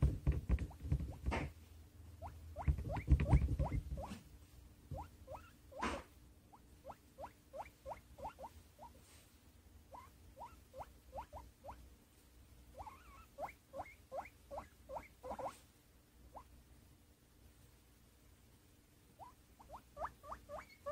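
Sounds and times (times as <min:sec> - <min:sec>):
guinea pig squeaking: 0:02.2 - 0:04.2, 0:04.9 - 0:09.1, 0:09.9 - 0:11.9, 0:12.7 - 0:15.6, 0:16.3 - 0:16.5, 0:19.2 - 0:20.9.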